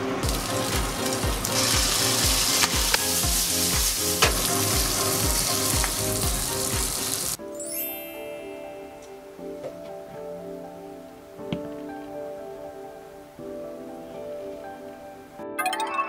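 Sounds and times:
meat sizzling in hot oil: 0.0s - 7.4s
background music with beat: 0.0s - 7.6s.

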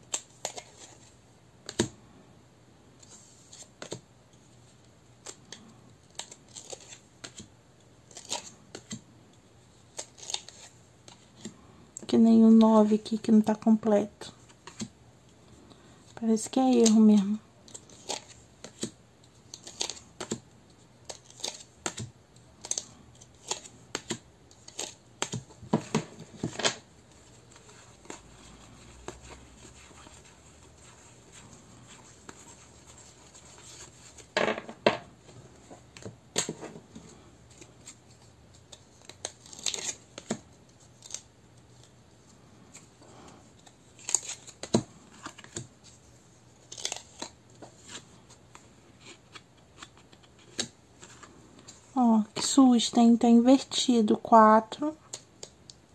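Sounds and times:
cards snapping and tapping: 17.7s - 20.4s, 21.0s - 22.8s.

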